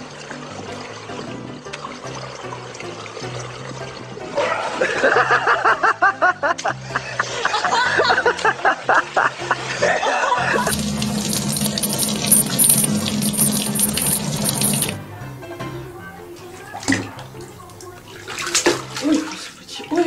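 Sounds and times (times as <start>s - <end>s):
water running from a tap: 10.6s - 15.0s, 16.5s - 20.0s.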